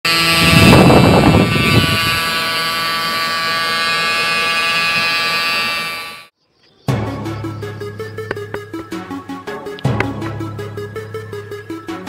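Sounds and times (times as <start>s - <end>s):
small electric motor whining: 0.0s - 6.3s.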